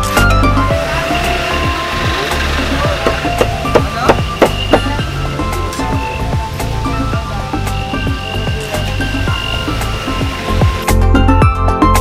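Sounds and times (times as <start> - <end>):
background music: 0.0 - 12.0
cleaver chopping on wooden block: 3.0 - 5.0.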